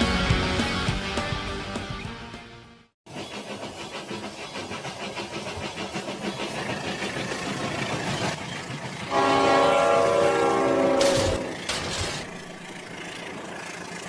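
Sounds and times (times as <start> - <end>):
loud train horn: 9.1 - 11.7.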